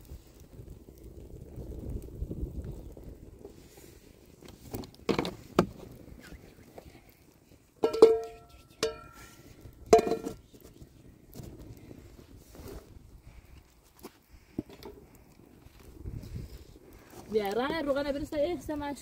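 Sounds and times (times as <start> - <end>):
metal lid knocking on pot: 7.8 - 8.2, 9.9 - 10.4
ringing metal clangs: 7.8 - 9.2.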